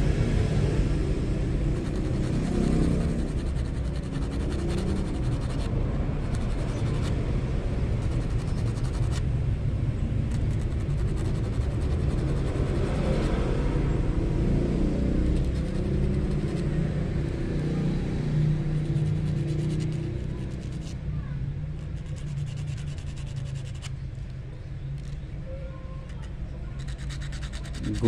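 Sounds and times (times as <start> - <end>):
fishhook scratching on sandpaper: 1.6 - 9.3, 10.2 - 13.6, 15.1 - 17.7, 18.6 - 21.1, 21.7 - 24.0, 26.0 - 28.0.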